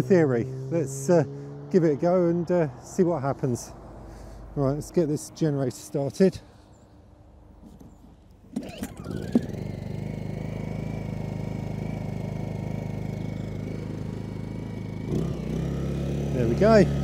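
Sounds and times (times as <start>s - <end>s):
generator starting rattle: 7.7s - 15.3s
generator engine running: 8.0s - 17.0s.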